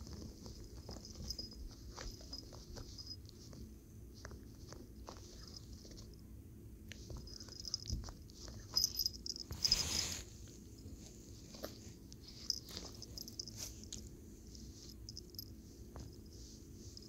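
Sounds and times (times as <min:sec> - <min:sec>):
collar tag jingling: 0:00.0 - 0:03.5, 0:07.1 - 0:10.1, 0:10.8 - 0:16.3
rustle on carpet: 0:00.0 - 0:06.2, 0:06.9 - 0:17.0.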